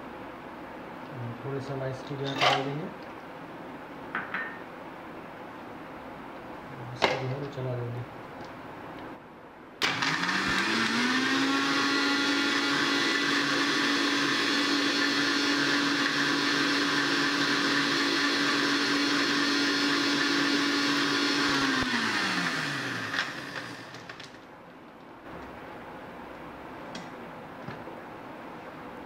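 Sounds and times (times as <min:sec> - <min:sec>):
mixer grinder motor whining: 0:09.8 - 0:24.3.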